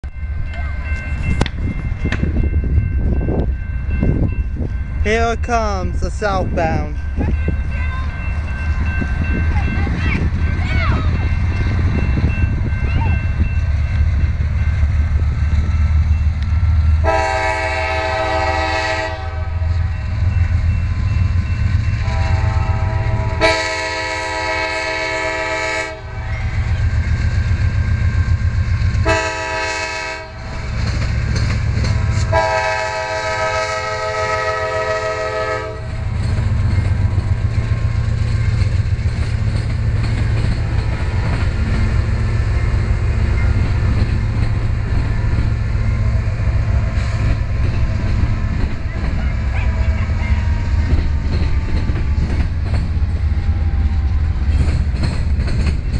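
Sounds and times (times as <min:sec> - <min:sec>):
locomotive engine rumble: 0:00.0 - 0:55.9
train wheels on rails: 0:00.0 - 0:55.9
locomotive air horn blasts: 0:17.0 - 0:19.7, 0:22.0 - 0:26.4, 0:29.0 - 0:30.6, 0:32.2 - 0:36.0.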